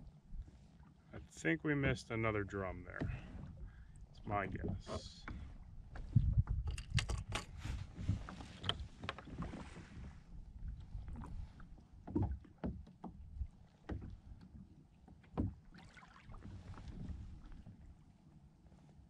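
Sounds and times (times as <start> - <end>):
water lapping against plastic hull: 0.0 - 19.0
light knocks against hull: 2.9 - 7.5, 12.0 - 17.7.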